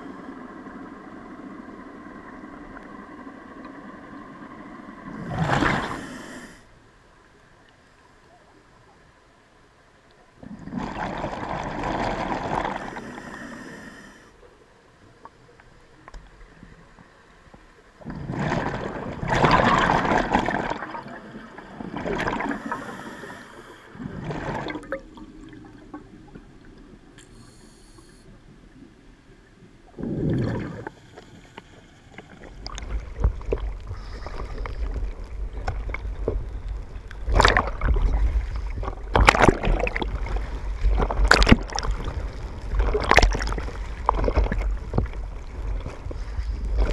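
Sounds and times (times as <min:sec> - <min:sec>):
breath bubbling from diving regulator: 0:29.9 - 0:31.0, 0:37.3 - 0:45.0
water sloshing: 0:32.1 - 0:46.9.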